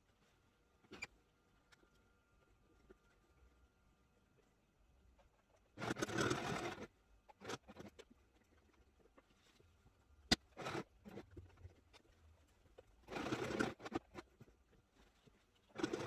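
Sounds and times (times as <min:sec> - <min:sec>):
sewing machine stitching: 0:05.8 - 0:08.0, 0:10.3 - 0:11.4, 0:13.0 - 0:14.4, 0:15.6 - 0:16.0
fabric rustling and scraping: 0:10.6 - 0:16.0.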